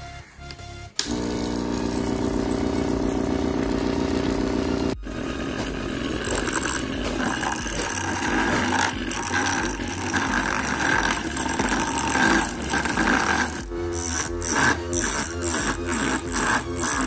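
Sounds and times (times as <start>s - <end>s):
lathe motor running: 1.0s - 17.0s
metal tool scraping spinning wood: 5.0s - 17.0s.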